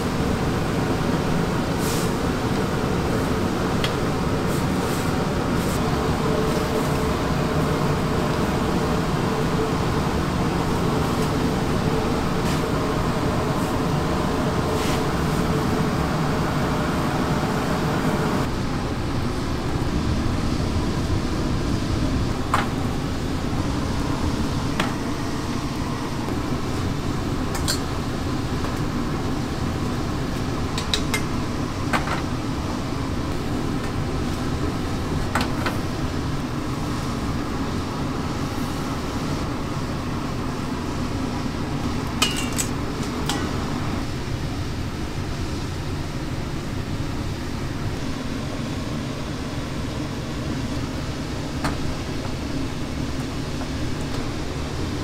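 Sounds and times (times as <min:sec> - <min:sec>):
mechanical fan hum: 0:00.0 - 0:55.0
dishes and utensils clinking: 0:42.2 - 0:43.5.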